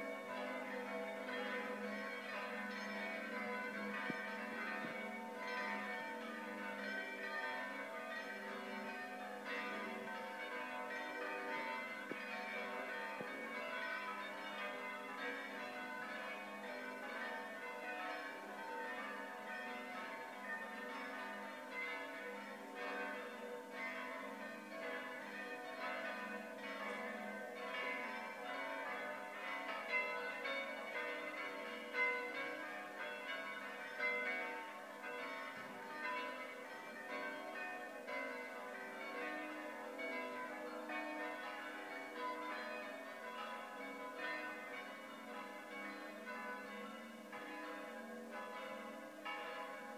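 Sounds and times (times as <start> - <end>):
church bells ringing: 0.0 - 49.9.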